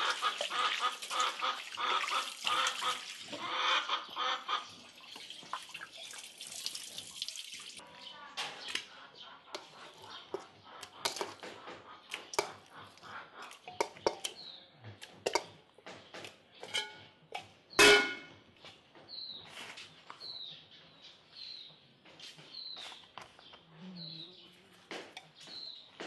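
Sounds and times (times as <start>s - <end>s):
small birds chirping: 0.3s - 17.8s, 18.6s - 26.0s
ringing metal clang: 16.7s - 17.1s, 17.8s - 18.3s.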